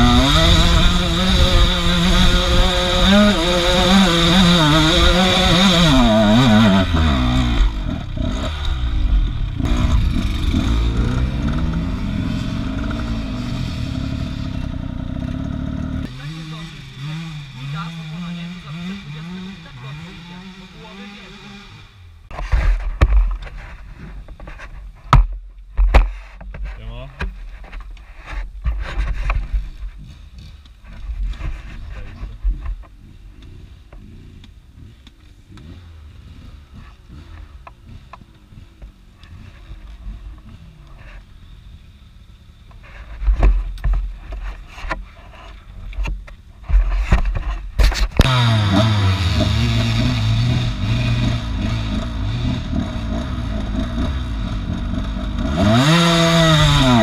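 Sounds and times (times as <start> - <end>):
motorcycle engine revving: 0.0 - 24.0, 29.4 - 57.0.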